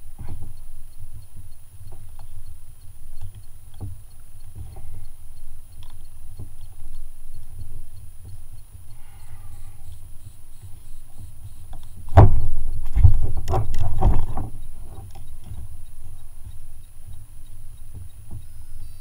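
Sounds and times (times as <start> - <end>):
knocks and clatter against kayak: 12.1 - 15.7.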